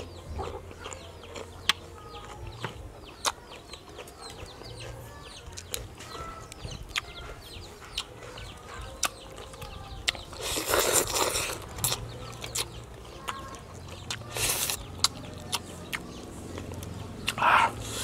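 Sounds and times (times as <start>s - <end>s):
chickens clucking: 0.0s - 18.0s.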